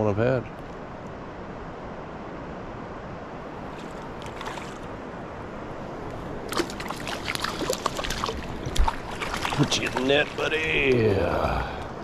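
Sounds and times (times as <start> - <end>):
moving water: 3.2 - 12.0
fish splashing at the surface: 3.7 - 4.9, 6.5 - 10.9.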